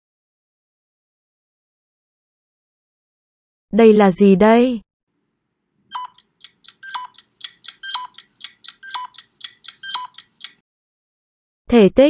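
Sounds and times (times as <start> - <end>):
countdown beeps: 5.9 - 10.6
quick bright timer ticks: 5.9 - 10.6.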